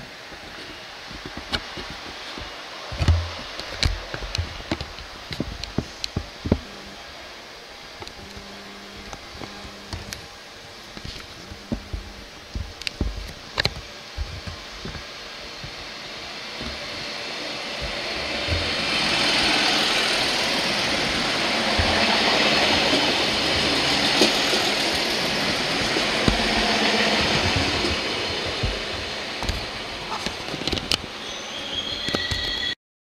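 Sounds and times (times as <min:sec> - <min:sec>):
train running along platform: 0:00.0 - 0:32.8
low thumps and clicks: 0:11.0 - 0:15.9, 0:17.8 - 0:31.0.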